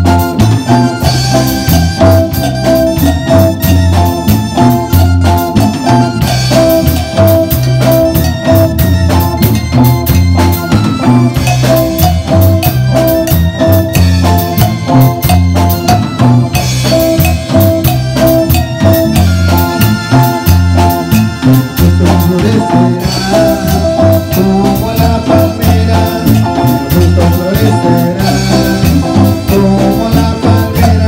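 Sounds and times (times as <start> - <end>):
drum kit with cymbals: 0.0 - 31.0
electric bass: 0.0 - 31.0
electric guitar: 0.0 - 31.0
keyboard: 0.0 - 31.0.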